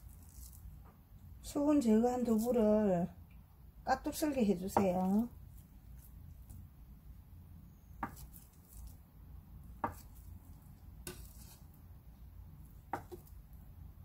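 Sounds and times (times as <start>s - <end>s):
knife knocking on cutting board: 12.9s - 13.3s.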